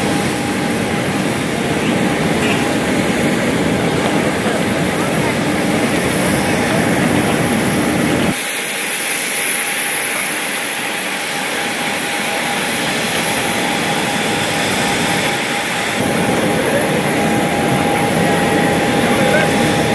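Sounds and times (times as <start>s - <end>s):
engine high whine: 10.5s - 19.9s.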